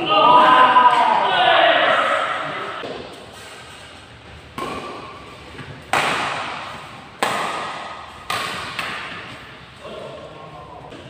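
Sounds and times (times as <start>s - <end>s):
rackets hitting shuttlecock: 4.5s - 9.6s.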